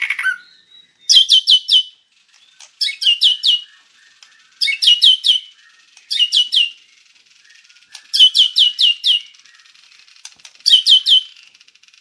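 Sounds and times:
bird singing whistled notes: 0.0 - 12.0.

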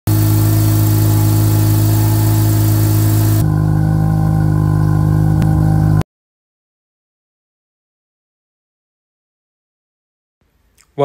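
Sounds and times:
rotary engine idling: 0.0 - 3.8
hiss: 0.1 - 3.4.

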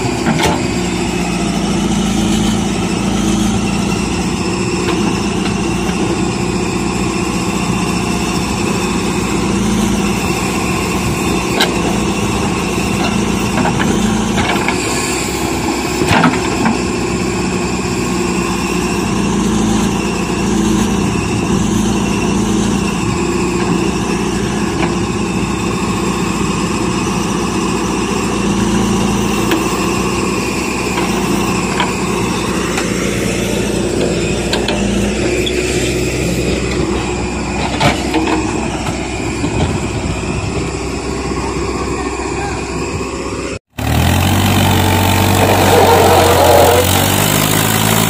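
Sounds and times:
diesel engine running: 0.0 - 48.0.

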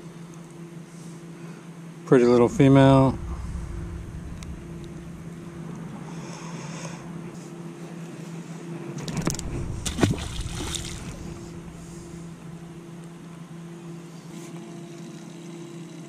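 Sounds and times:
steady low hum: 0.0 - 15.4
fish splashing into water: 9.1 - 12.1.

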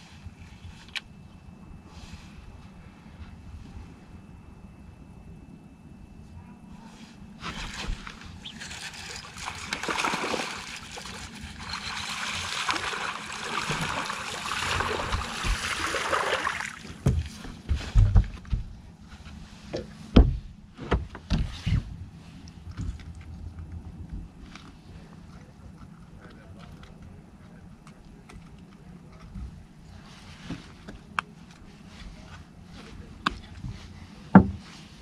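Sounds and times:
water splashing and sloshing: 7.4 - 18.3
dull knocks and thumps: 15.0 - 15.8, 17.0 - 18.8, 19.7 - 21.6, 34.3 - 34.7.

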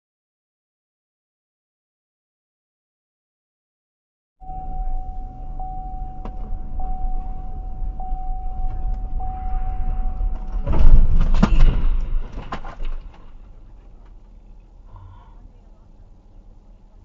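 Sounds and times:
steady high tone with ticks: 4.4 - 10.8
vehicle crash: 4.7 - 14.6.

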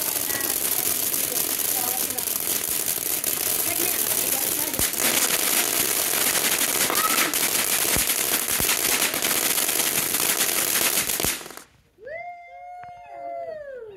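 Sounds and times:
fireworks hissing and crackling: 0.0 - 11.9.

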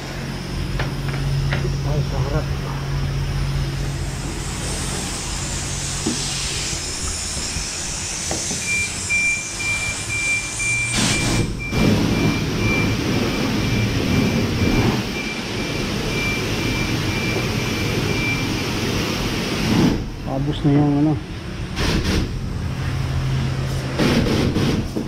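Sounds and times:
pressure washer spraying water: 2.8 - 20.1, 21.8 - 25.0
high repeating beep: 8.6 - 18.6.

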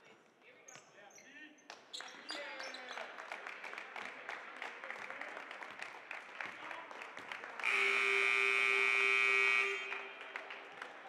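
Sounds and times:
scoreboard buzzer: 7.6 - 9.9.

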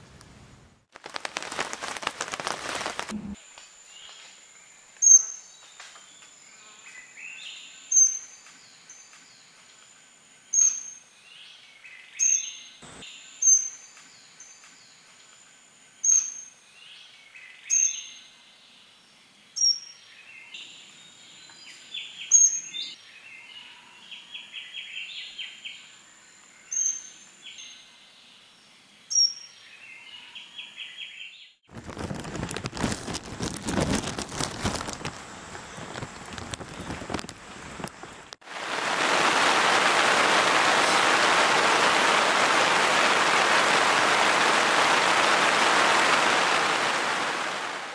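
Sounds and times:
heavy rain hissing: 1.0 - 3.4, 12.8 - 13.0, 34.3 - 47.9.

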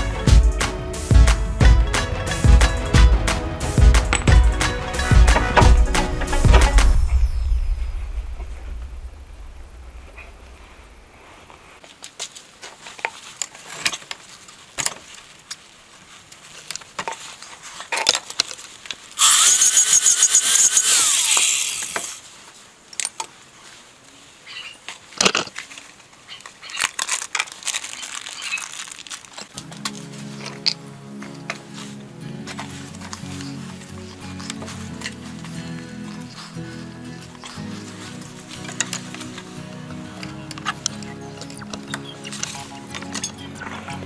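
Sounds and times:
metal tools clinking: 4.0 - 6.5, 40.2 - 44.0
power tool spinning: 19.2 - 22.2.

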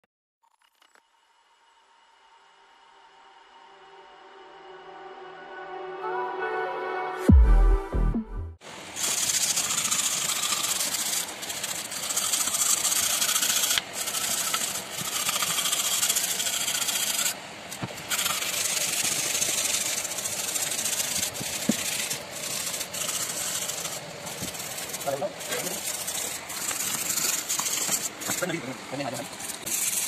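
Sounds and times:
wire brush scrubbing metal: 8.9 - 30.0.

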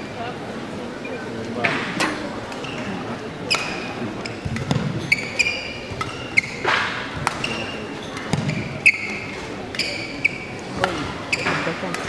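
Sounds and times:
shoes squeaking on court: 2.5 - 12.0
rackets striking shuttlecock: 3.5 - 12.0.

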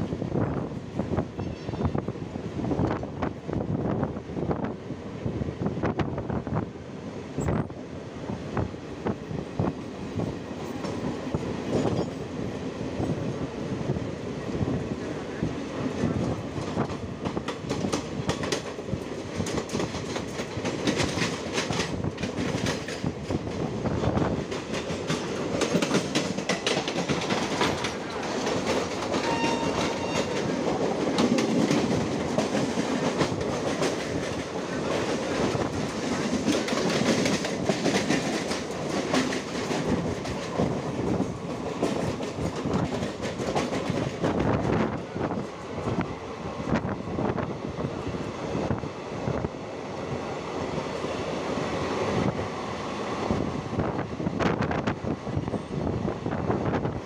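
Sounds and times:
train rumbling past: 0.0 - 57.0
wheels clattering over rail joints: 24.4 - 44.7.

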